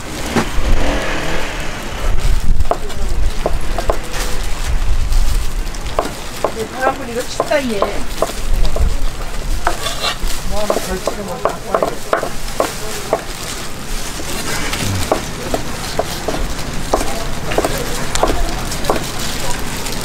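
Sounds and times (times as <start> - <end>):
market din: 0.0 - 20.0
knife chopping on cutting board: 9.6 - 13.3.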